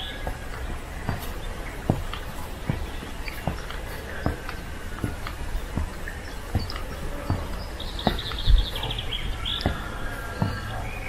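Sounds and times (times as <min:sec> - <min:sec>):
footsteps on wooden stairs: 0:00.0 - 0:11.0
songbird trill: 0:00.0 - 0:11.0
faint bird chirps: 0:05.6 - 0:11.0.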